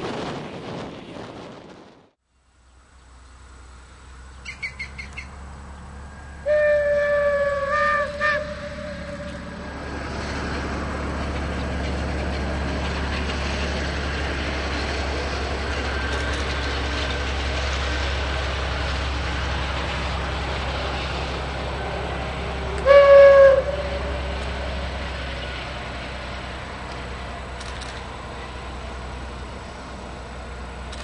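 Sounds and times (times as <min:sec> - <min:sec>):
diesel engine drone: 0:02.3 - 0:31.0
train horn blast: 0:06.2 - 0:10.2, 0:22.7 - 0:24.8.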